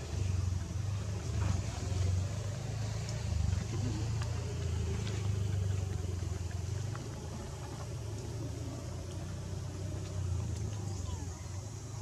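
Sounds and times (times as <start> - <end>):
faint ticks: 2.3 - 11.8.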